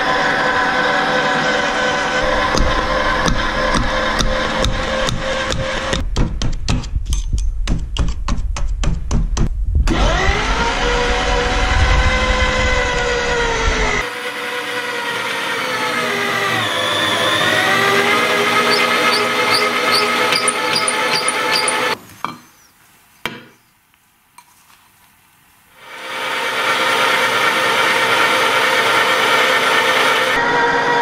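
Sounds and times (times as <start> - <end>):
electric grinder motor whine: 0.0 - 6.0, 9.9 - 22.0, 25.8 - 31.0.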